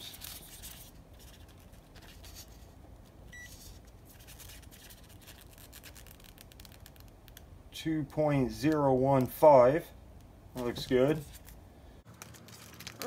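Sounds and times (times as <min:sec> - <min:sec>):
faint rustling and scraping: 0:00.0 - 0:05.5.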